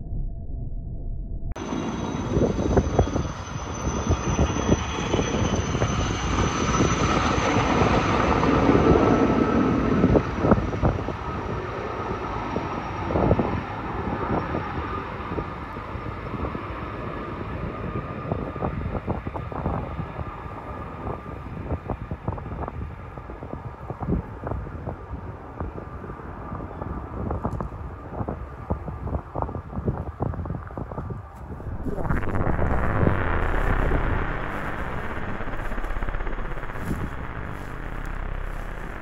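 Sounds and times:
helicopter rotor chopping: 31.4s - 39.0s.

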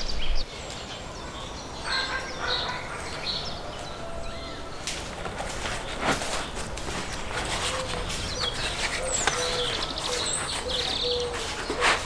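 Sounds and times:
birds calling and chirping: 0.0s - 12.0s
flatbread rustling being folded: 4.9s - 12.0s.

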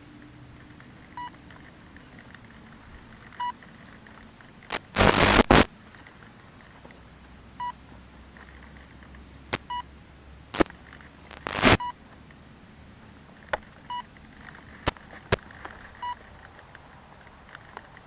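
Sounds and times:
short electronic beeps: 11.3s - 12.0s.

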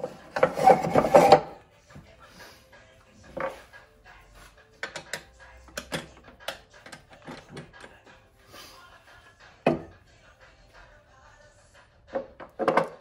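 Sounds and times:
wooden bowl and tool knocks: 9.6s - 9.9s.

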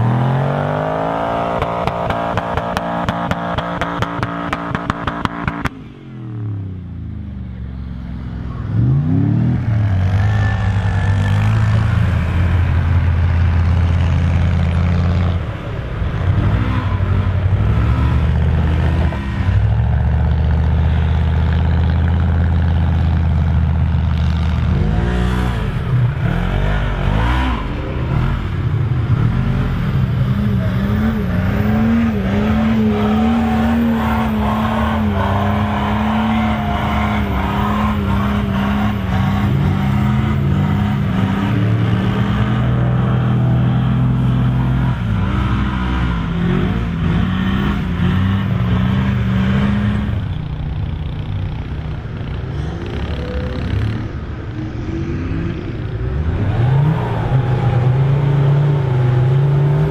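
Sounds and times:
engine revving hard: 29.2s - 50.3s.

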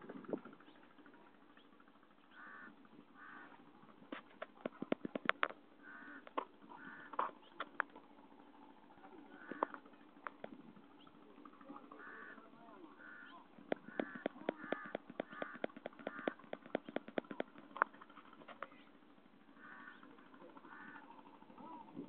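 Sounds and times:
bird calling: 0.4s - 22.0s
rapid sharp clicks: 13.6s - 19.4s.

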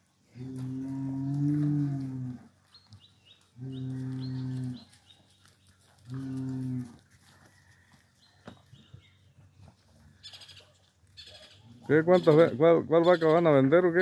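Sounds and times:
bull lowing: 0.3s - 2.6s, 3.6s - 4.9s, 6.1s - 7.0s.

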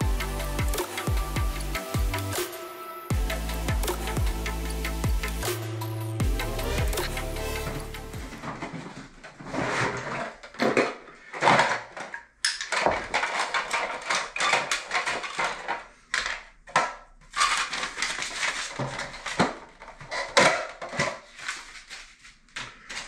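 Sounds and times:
rustling knocking and clattering: 7.7s - 23.0s.

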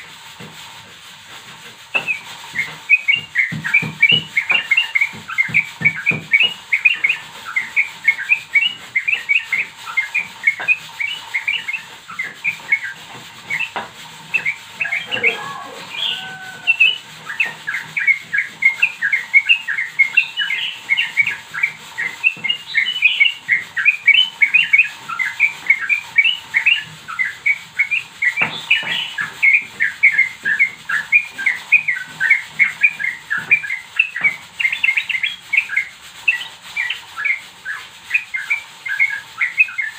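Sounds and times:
whistled bird notes: 1.9s - 39.9s
young bird chirping: 14.4s - 37.0s.

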